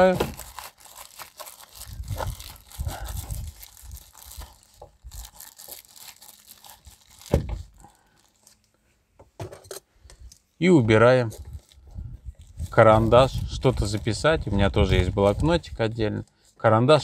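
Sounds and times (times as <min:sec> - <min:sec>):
rustling of small items: 0:00.0 - 0:17.0.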